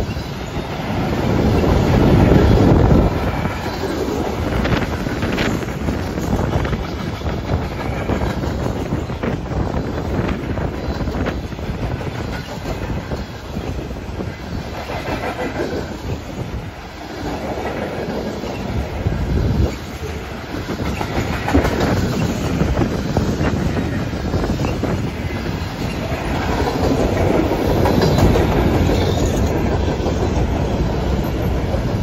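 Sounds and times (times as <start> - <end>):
train wheels rumbling over rails: 0.0 - 32.0.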